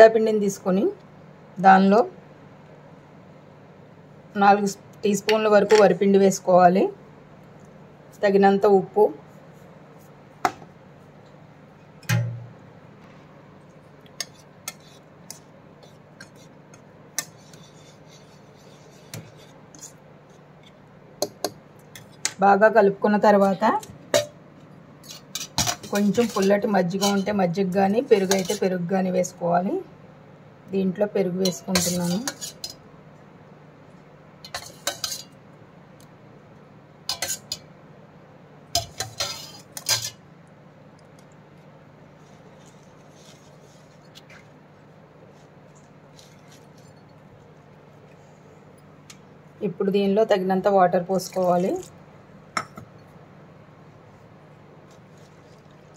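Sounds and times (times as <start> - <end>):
whisk mixing flour: 17.2 - 20.0.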